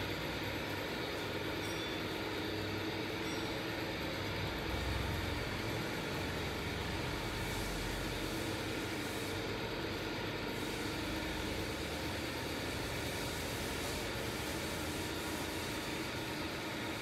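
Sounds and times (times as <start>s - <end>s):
machine running with rushing noise: 3.8s - 17.0s.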